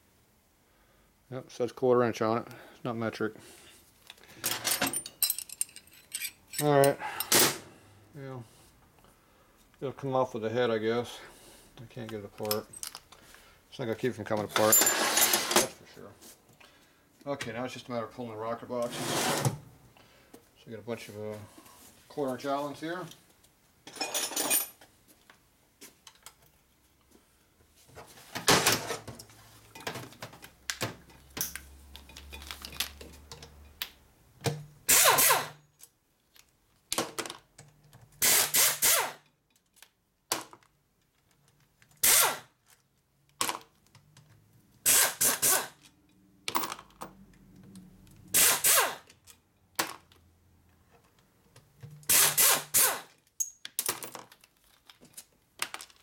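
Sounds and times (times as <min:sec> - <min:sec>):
air tool spinning bolts: 0:34.9 - 0:35.6, 0:38.2 - 0:39.2, 0:42.0 - 0:42.4, 0:44.8 - 0:45.8, 0:48.3 - 0:49.1, 0:52.1 - 0:53.1.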